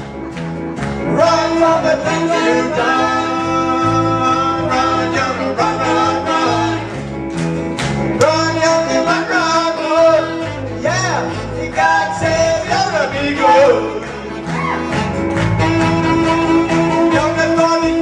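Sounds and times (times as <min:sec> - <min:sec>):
country band music: 0:00.0 - 0:18.0
man singing: 0:01.0 - 0:06.8, 0:08.2 - 0:14.5, 0:15.6 - 0:18.0.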